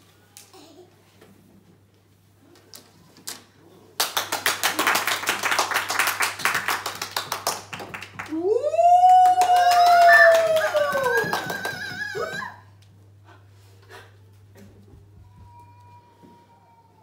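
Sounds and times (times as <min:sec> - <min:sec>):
small group clapping: 0:04.0 - 0:12.7.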